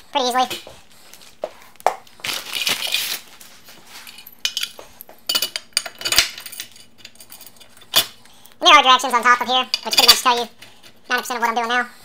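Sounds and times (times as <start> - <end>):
metal hardware clinking: 4.1 - 8.2.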